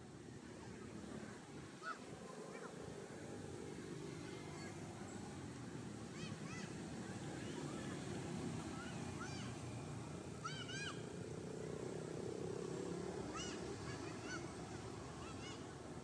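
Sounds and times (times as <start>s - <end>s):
short high animal calls: 10.4s - 11.1s.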